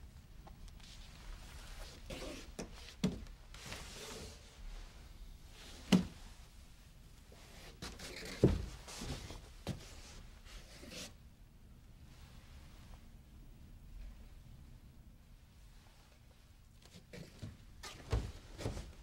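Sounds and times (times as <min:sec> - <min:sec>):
soft rustling and handling noise: 0:00.0 - 0:11.2, 0:11.9 - 0:14.6, 0:15.3 - 0:19.0.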